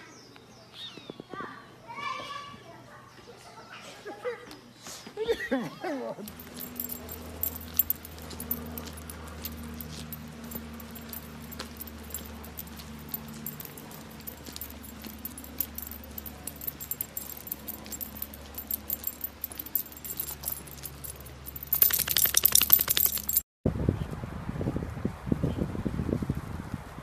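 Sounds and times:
collar tags jingling: 6.2s - 23.4s.

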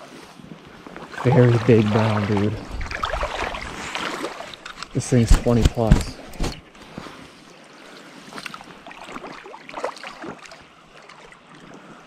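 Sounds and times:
stream water rushing: 1.0s - 6.8s
small splashes and knocks: 1.0s - 7.0s, 8.3s - 11.4s.

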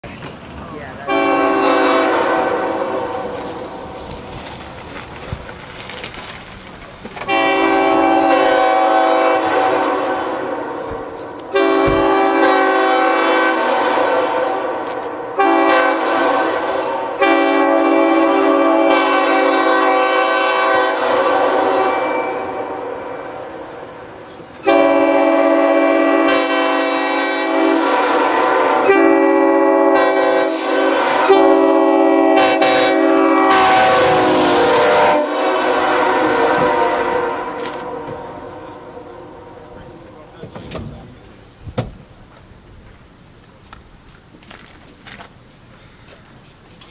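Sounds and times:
air horn chord: 1.1s - 3.3s, 7.2s - 10.8s, 11.5s - 23.6s, 24.6s - 39.8s.

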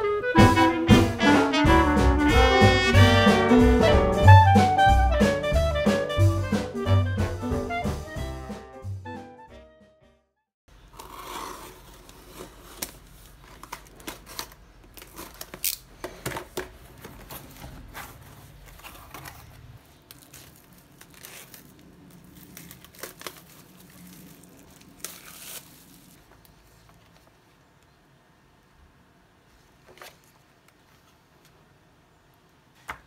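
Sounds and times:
blade scraping packing tape: 10.9s - 13.0s
cardboard tearing: 10.9s - 15.8s, 17.2s - 26.3s
bubble wrap and plastic crinkling: 10.9s - 27.6s.

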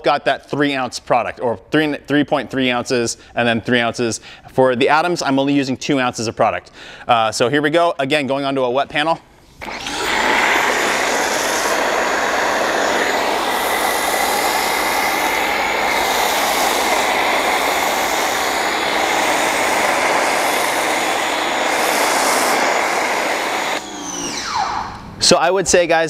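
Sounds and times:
foam cannon spraying: 9.6s - 24.6s
pressure washer running: 9.6s - 24.7s.

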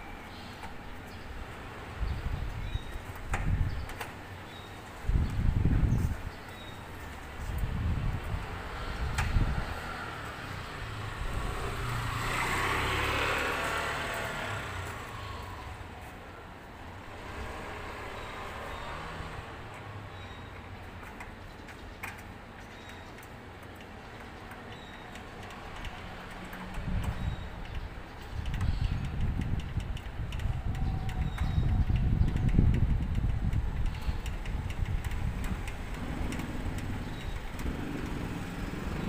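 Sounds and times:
faint clicks: 21.0s - 38.2s.

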